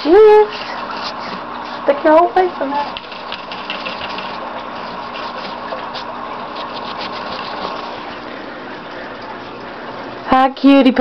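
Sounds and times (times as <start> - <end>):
ferret digging in sand: 3.1 - 7.9.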